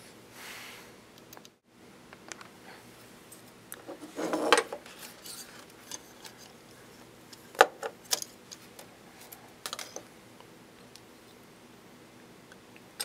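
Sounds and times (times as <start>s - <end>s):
metal parts clattering on table: 4.0s - 6.1s, 9.6s - 10.0s.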